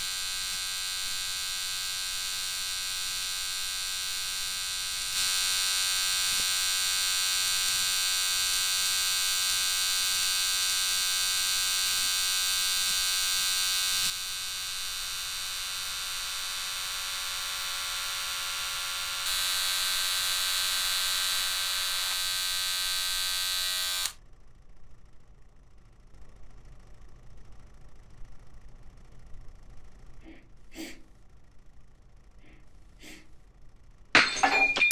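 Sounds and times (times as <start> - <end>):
electric beard trimmer buzzing: 0.0 - 24.2.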